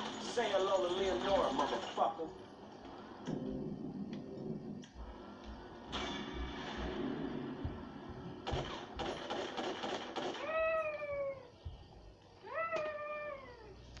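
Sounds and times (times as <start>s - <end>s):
cat meowing: 10.4s - 11.5s, 12.4s - 13.8s.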